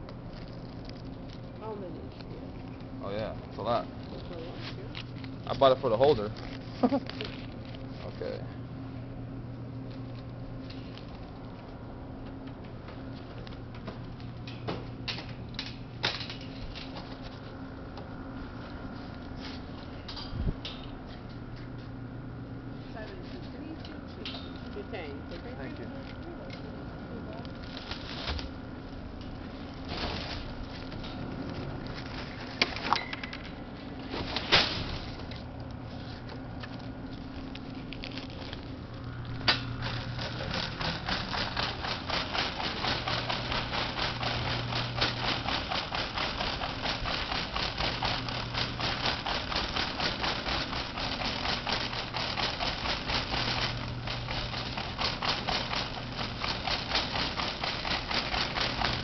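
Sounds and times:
shopping cart rattling on tiles: 39.8 - 59.0.

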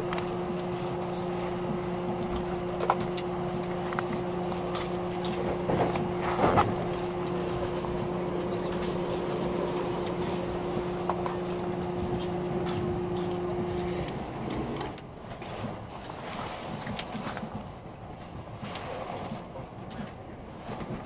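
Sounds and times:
rumble of wheels on rail: 0.0 - 21.0
steady low hum: 0.0 - 21.0.

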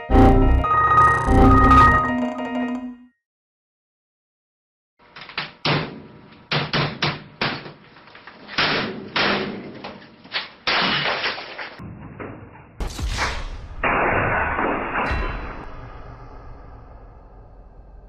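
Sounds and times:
monitor smashing against desk: 8.4 - 11.8.

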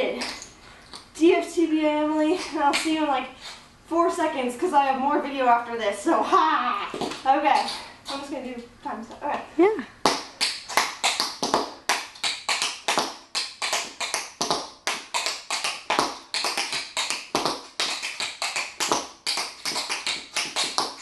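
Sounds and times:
tap shoes on concrete: 10.1 - 11.8, 12.5 - 21.0.

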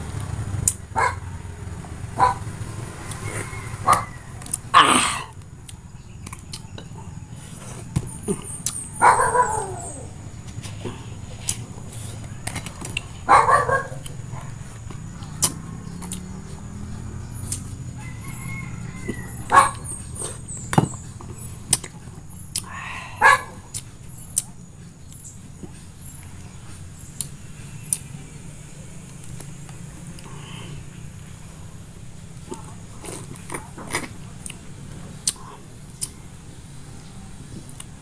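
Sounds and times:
drawn-out animal calls: 0.9 - 5.4, 13.2 - 21.6.

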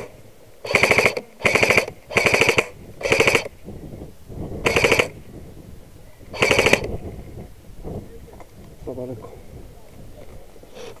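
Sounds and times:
airsoft gun firing bursts: 0.0 - 3.6, 4.6 - 5.2, 6.3 - 7.0.

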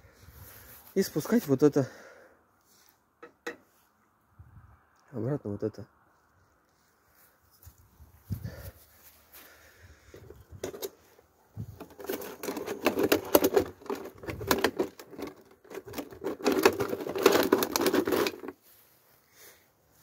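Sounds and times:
plastic wrapping crinkling: 11.8 - 18.6.

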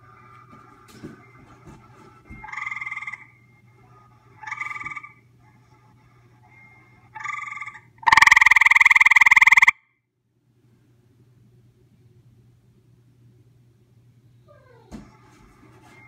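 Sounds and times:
treefrog trilling: 2.4 - 3.3, 4.4 - 5.2, 7.2 - 9.8.

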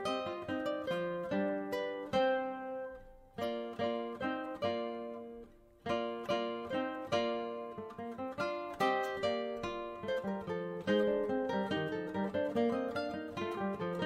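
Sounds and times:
solo plucked string instrument: 0.0 - 14.0.

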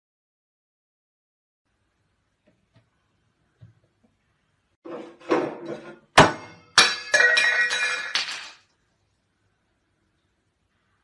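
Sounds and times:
glassy objects clinking and knocking: 6.6 - 8.7.

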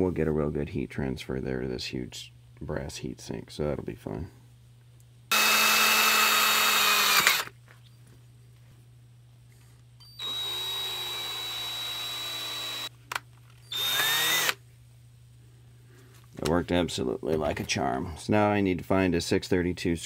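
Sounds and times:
cordless drill boring into metal: 5.3 - 7.5, 10.2 - 12.9, 13.7 - 14.6.

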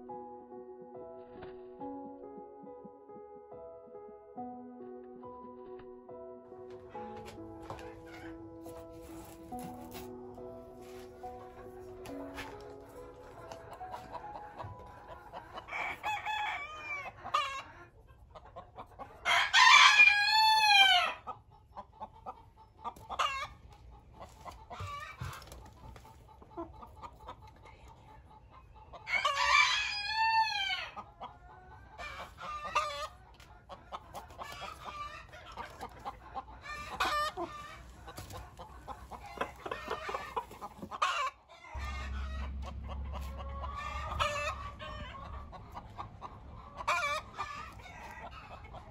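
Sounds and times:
hens clucking: 6.7 - 48.9
rooster crowing: 15.5 - 17.7, 19.2 - 21.2, 41.2 - 45.4.

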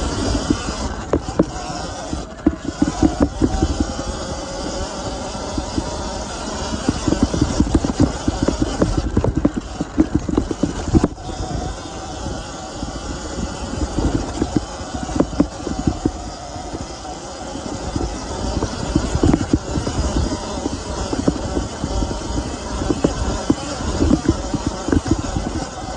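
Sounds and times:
bike knocking and rattling: 0.0 - 25.9
wind and trail noise rumble: 0.0 - 25.9.

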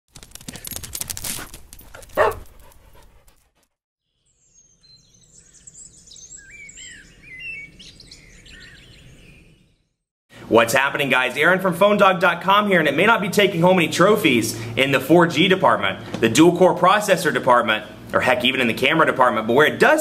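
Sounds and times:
fast run of clicks: 0.1 - 3.4
rustling: 0.1 - 3.6
birds chirping: 2.2 - 2.4, 4.1 - 10.0.

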